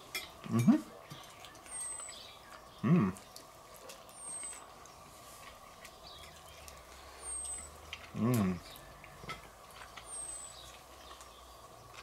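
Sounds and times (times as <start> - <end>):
eating sounds: 0.0 - 12.0
man saying hm: 2.8 - 3.2, 8.2 - 8.7.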